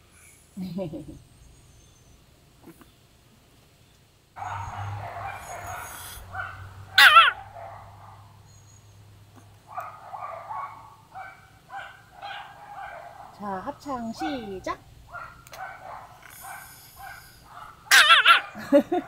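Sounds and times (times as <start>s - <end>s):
dog howling: 4.4s - 8.6s, 17.9s - 18.6s.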